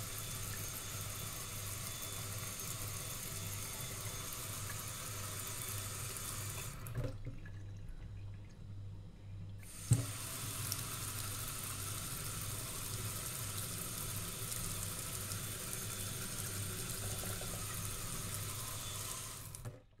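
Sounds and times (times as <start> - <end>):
tap water splashing into steel sink: 9.8 - 10.2.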